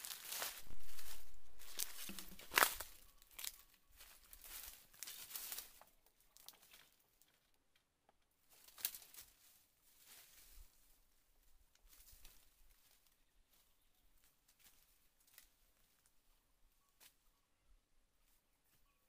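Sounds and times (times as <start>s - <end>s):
footsteps on dry leaves: 0.0s - 5.9s.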